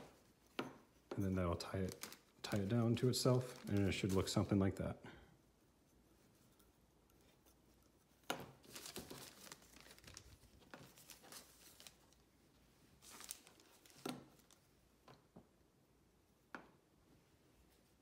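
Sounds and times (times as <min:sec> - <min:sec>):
plastic parachute crinkling: 0:01.8 - 0:04.5, 0:08.6 - 0:12.2, 0:13.0 - 0:14.6.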